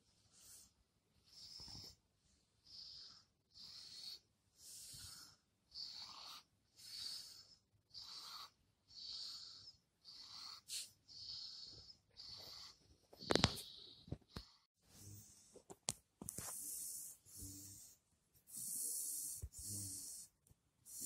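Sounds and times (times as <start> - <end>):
dog wheezy breathing: 2.6 - 15.5, 16.4 - 20.3.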